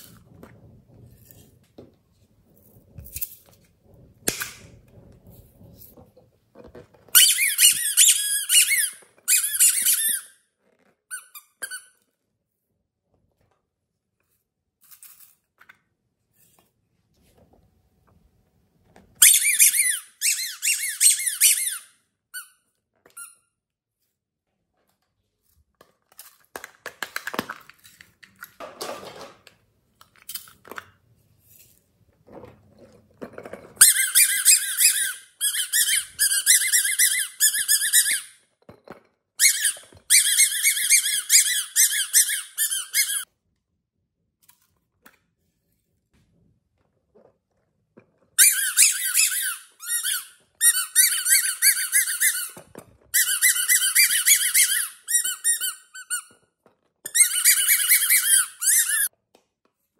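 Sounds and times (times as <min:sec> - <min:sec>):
rubber squeeze toys squeaking: 0:07.0 - 0:12.0, 0:19.2 - 0:23.5, 0:33.8 - 0:38.5, 0:39.4 - 0:43.3, 0:48.4 - 0:56.4, 0:57.0 - 0:59.1.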